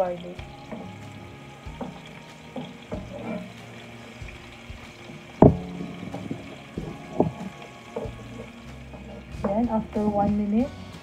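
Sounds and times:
onions frying in oil: 0:00.0 - 0:11.0
wooden spoon knocking and scraping pan: 0:01.7 - 0:03.6, 0:05.4 - 0:10.5.

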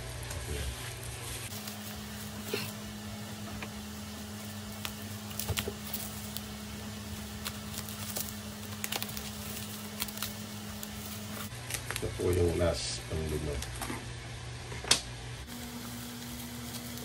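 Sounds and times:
steady low hum: 0:00.0 - 0:17.0
scissors cutting bubble wrap: 0:04.3 - 0:12.4.

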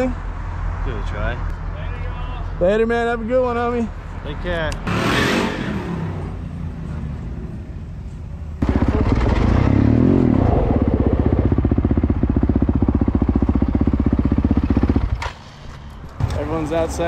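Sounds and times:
dirt bike engine revving: 0:04.8 - 0:06.5, 0:08.6 - 0:15.3.

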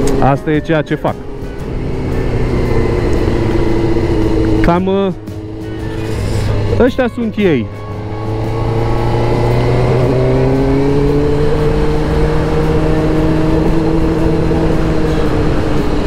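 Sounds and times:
wind rushing: 0:01.2 - 0:06.8.

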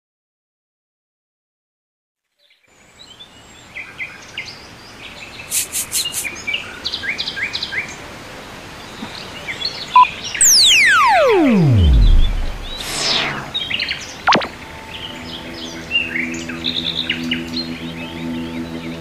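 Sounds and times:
steady hiss: 0:05.5 - 0:06.4
remote button beep: 0:10.4 - 0:13.6, 0:14.3 - 0:14.5.

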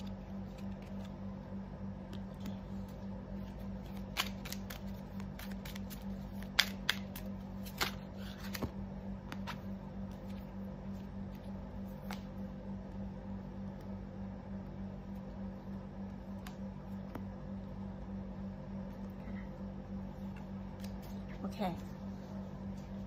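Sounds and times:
cards shuffling and snapping: 0:00.0 - 0:01.2, 0:02.0 - 0:10.4, 0:11.3 - 0:12.4
steady low hum: 0:00.0 - 0:23.0.

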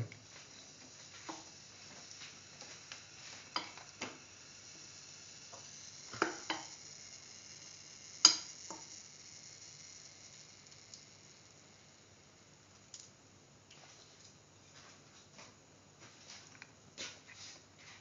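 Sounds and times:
hot oil sizzling: 0:00.0 - 0:13.1.

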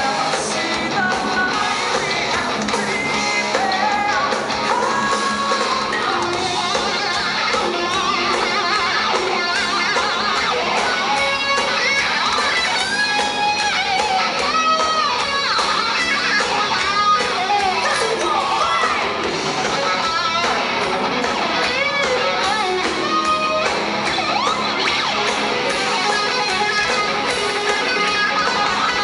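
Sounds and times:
live hard rock band: 0:00.0 - 0:29.0
sliding lead guitar notes: 0:00.0 - 0:29.0.

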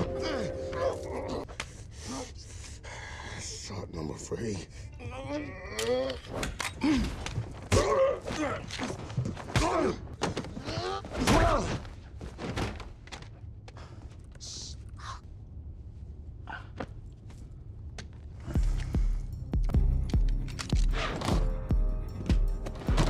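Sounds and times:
men grunting and groaning: 0:00.0 - 0:02.4, 0:05.1 - 0:11.9.

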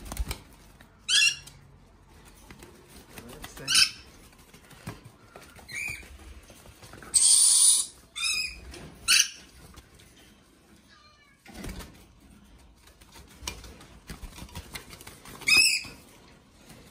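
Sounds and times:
parrots high-pitched calls: 0:01.0 - 0:01.5, 0:03.6 - 0:04.1, 0:05.7 - 0:06.1, 0:07.1 - 0:09.6, 0:15.4 - 0:16.0.

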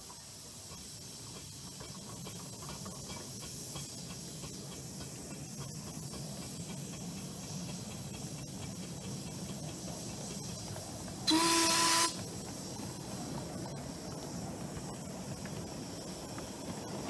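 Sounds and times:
train running on track: 0:00.0 - 0:17.0
steam whistle blast: 0:11.3 - 0:12.2.

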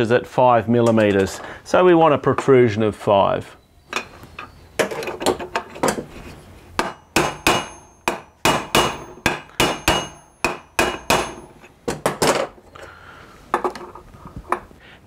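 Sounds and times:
hammer tapping metal: 0:06.8 - 0:12.2.

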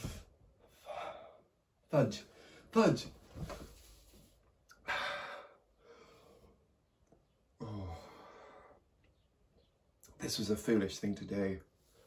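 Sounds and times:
man breathing heavily and sighing: 0:00.0 - 0:01.7, 0:03.4 - 0:06.7, 0:07.5 - 0:09.0
man groaning: 0:07.6 - 0:08.2.

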